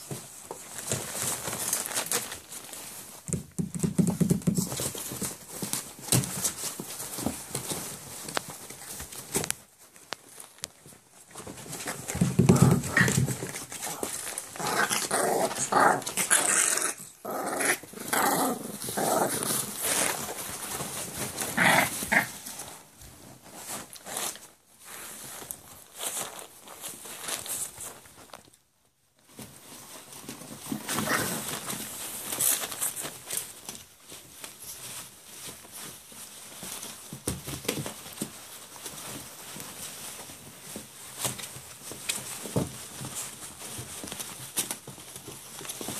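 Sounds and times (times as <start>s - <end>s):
paper towels rustling: 0.0s - 45.9s
puppies growling: 11.7s - 22.8s, 30.8s - 32.3s.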